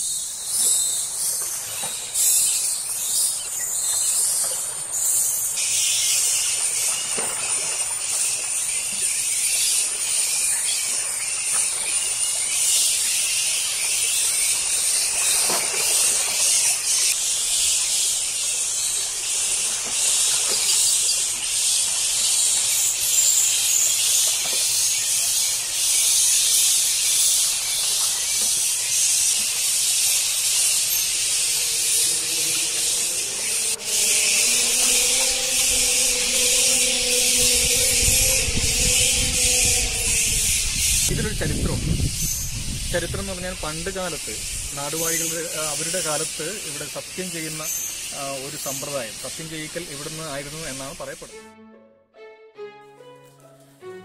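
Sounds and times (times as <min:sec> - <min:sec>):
insect chorus hiss: 0:00.0 - 0:51.3
thin high whine: 0:29.7 - 0:41.7.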